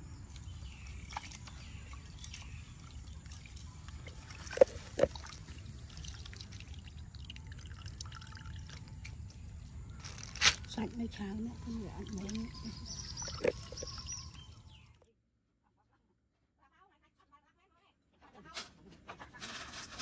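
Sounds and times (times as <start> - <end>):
water drops plinking: 11.8 - 14.5.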